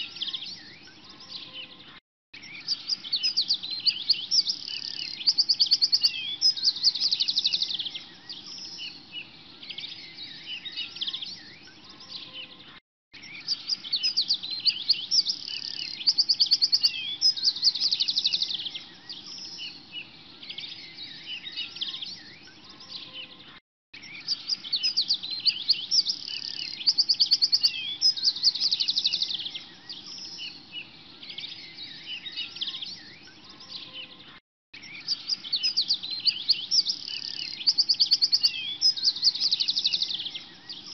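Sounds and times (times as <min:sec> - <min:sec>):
small birds chirping and trilling: 0:00.0 - 0:40.9.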